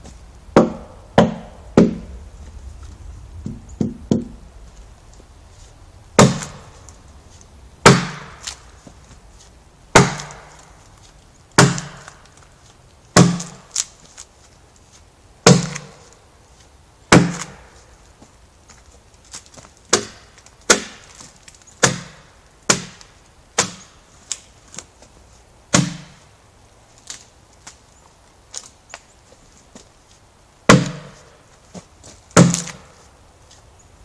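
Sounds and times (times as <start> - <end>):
adze chopping into log: 0.6 - 2.1, 6.2 - 6.7, 7.8 - 8.6, 9.9 - 10.7, 11.6 - 12.2, 13.2 - 13.8, 15.4 - 16.0, 17.1 - 17.7, 19.9 - 21.2, 21.8 - 23.9, 25.7 - 26.2, 30.7 - 31.3, 32.4 - 32.9.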